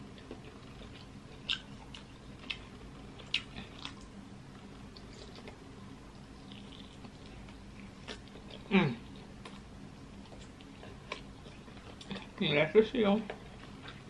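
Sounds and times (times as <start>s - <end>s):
person chewing wet smacks: 0.0s - 12.5s
faint steady hum: 0.0s - 14.0s.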